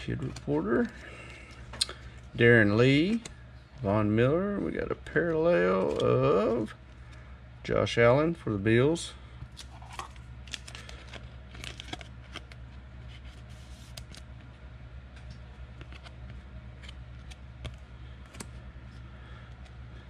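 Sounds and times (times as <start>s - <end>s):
cards clicking and rustling: 0.0s - 2.0s, 2.7s - 3.4s, 5.1s - 6.7s, 9.5s - 12.6s, 15.2s - 19.8s
steady low hum: 0.0s - 20.0s.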